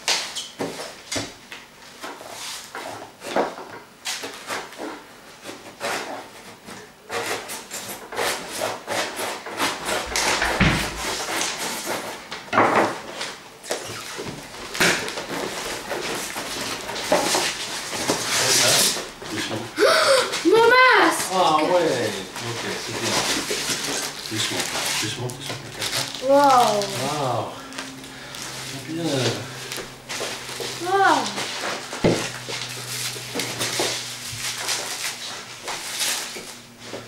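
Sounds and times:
cardboard flaps scraping and ripping: 0:13.1 - 0:19.5, 0:21.2 - 0:37.0.

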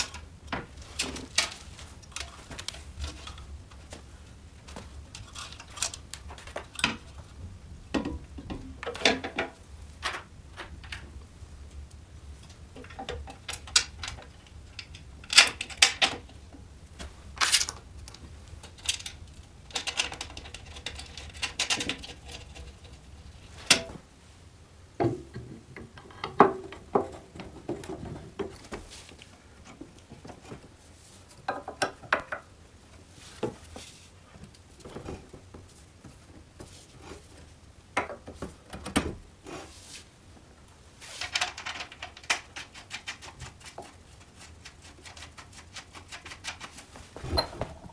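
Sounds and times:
metal parts clicking and clattering: 0:05.1 - 0:07.0, 0:12.8 - 0:16.2, 0:17.4 - 0:17.8, 0:18.6 - 0:22.9, 0:41.1 - 0:43.2.

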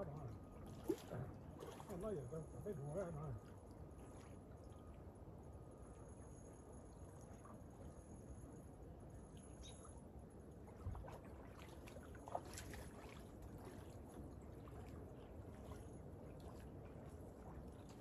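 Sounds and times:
small waves lapping at shore: 0:00.0 - 0:05.2, 0:09.2 - 0:18.0.

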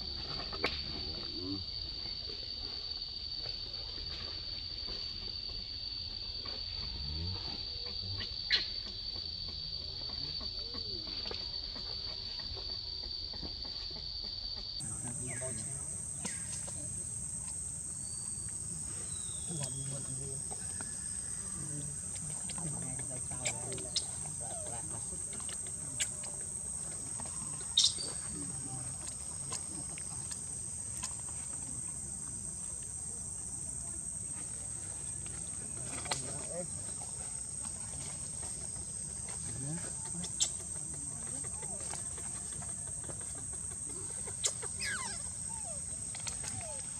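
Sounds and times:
high-pitched insect drone: 0:14.8 - 0:46.9.

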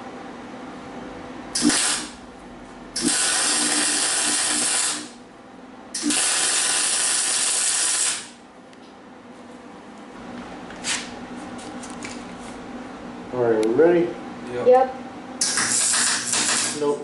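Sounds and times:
welder arc sizzling: 0:01.6 - 0:02.2, 0:03.0 - 0:05.2, 0:06.0 - 0:08.4, 0:15.4 - 0:17.0.

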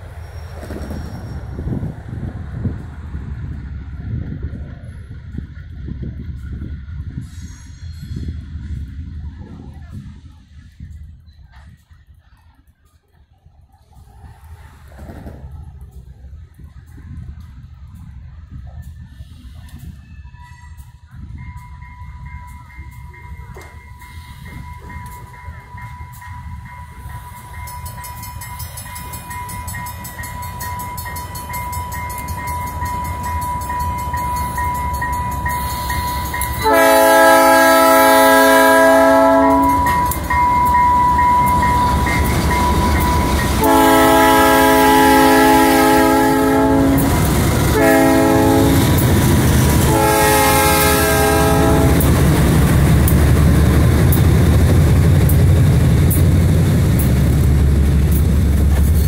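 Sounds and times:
diesel locomotive engines rumbling: 0:00.0 - 0:59.0
multi-chime air horn: 0:34.0 - 0:47.1.

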